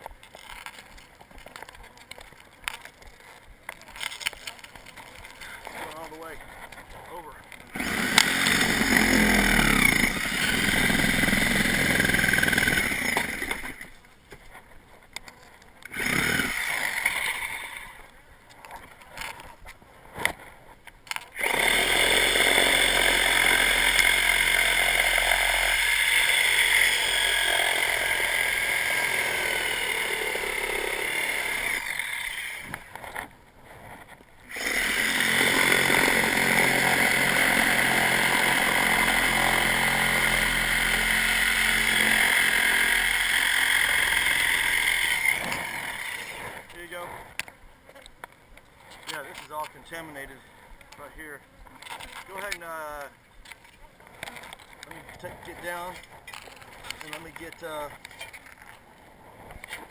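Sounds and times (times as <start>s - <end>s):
reciprocating saw cutting wood: 4.0s - 13.9s, 15.9s - 18.1s, 21.3s - 33.2s, 34.5s - 47.3s.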